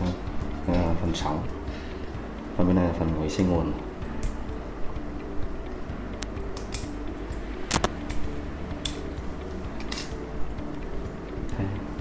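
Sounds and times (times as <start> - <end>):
low steady hum: 0.0 - 12.0
small clicks of metal parts handled: 9.8 - 10.2.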